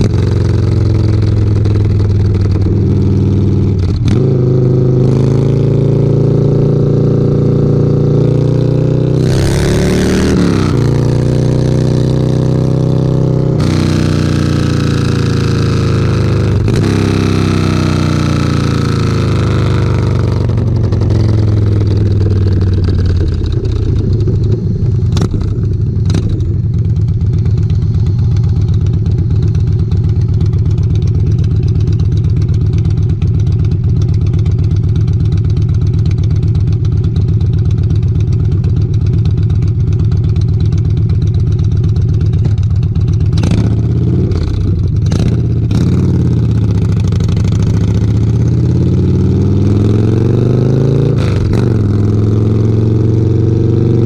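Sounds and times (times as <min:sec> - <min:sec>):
motorcycle engine idling: 0:00.0 - 0:04.1, 0:19.2 - 0:49.8
motorcycle accelerating away: 0:00.0 - 0:30.6, 0:42.4 - 0:54.0.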